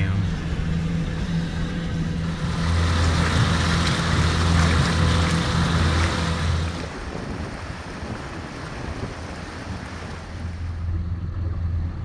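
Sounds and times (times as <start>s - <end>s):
boat motor humming: 0.0s - 12.0s
wind and water hiss: 2.1s - 11.7s.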